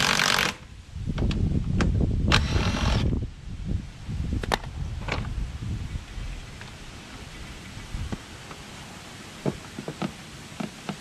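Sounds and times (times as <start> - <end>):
cordless drill running in bursts: 0.0 - 0.6, 2.3 - 3.0.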